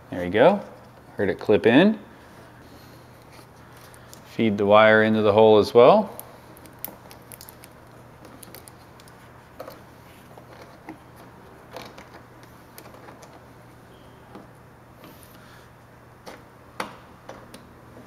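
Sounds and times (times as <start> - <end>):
fingers handling wire and plastic plug: 6.2 - 9.8.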